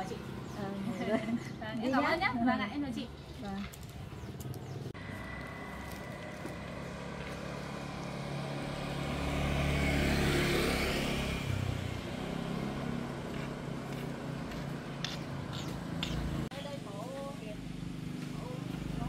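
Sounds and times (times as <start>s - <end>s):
vehicle engine passing by: 4.6s - 16.6s.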